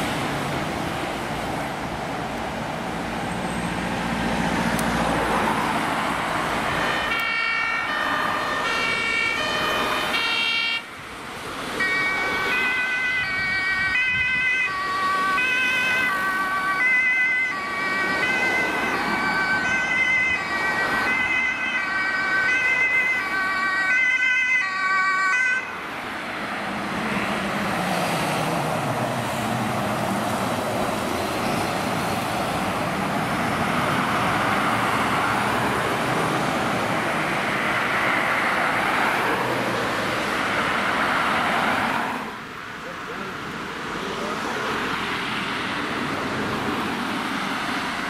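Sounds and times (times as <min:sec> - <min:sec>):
fire truck engine and tyres: 0:00.0 - 0:48.0
two-tone fire engine siren: 0:06.4 - 0:11.0, 0:11.7 - 0:26.0.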